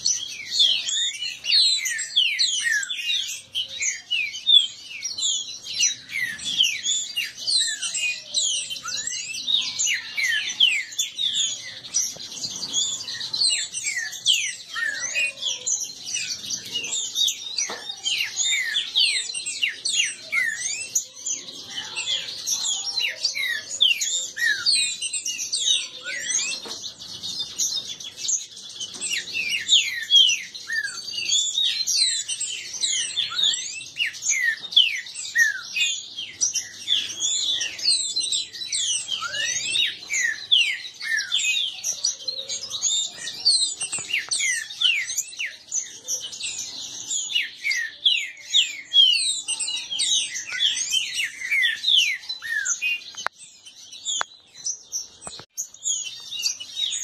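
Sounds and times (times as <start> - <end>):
birds chirping and calling: 0.0 - 57.0.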